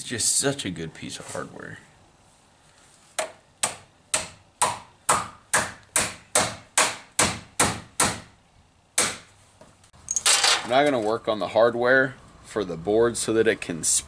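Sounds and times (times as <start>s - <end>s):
hammer tapping on wooden frame: 3.2s - 8.3s, 9.0s - 9.3s.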